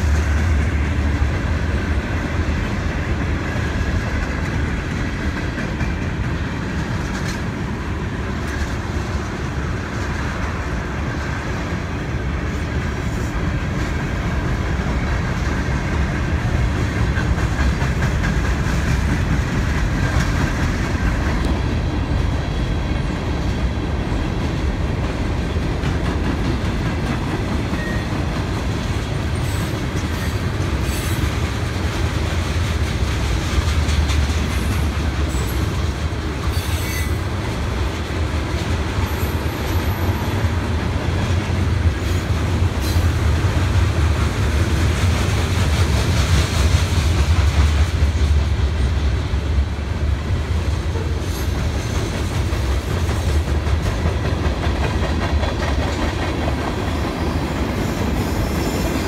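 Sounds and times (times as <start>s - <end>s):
train wheels rumbling on rail: 0.0s - 59.0s
wheels clacking over rail joints: 13.2s - 49.0s, 50.9s - 59.0s.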